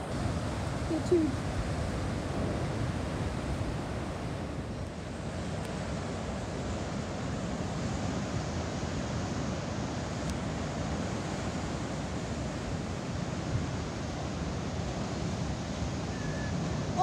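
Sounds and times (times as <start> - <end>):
wind buffeting microphone: 0.0 - 6.4
heavy ocean surf: 0.0 - 17.0.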